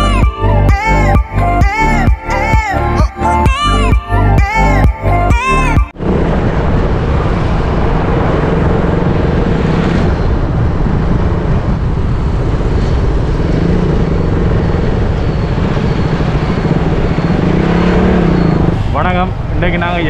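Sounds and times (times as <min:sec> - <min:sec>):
wind rush over microphone: 0:06.0 - 0:20.0
motorcycle engine running: 0:12.3 - 0:18.8.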